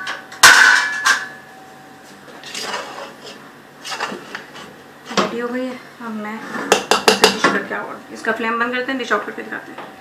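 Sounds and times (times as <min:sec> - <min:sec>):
metal cookware clanging: 0:00.0 - 0:01.5.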